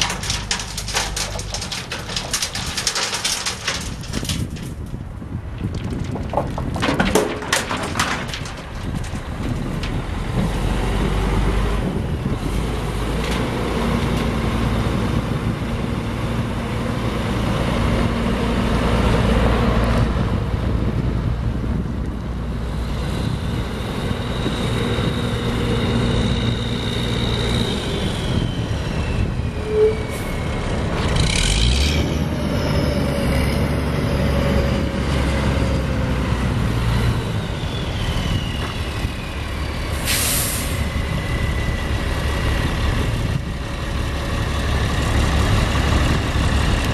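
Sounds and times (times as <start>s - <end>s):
diesel truck engine running: 0.0s - 6.5s.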